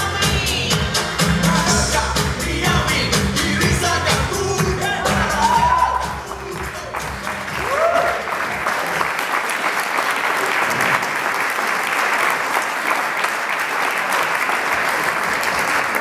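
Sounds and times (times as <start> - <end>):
dance music: 0.0 - 9.1
audience applauding: 4.8 - 16.0.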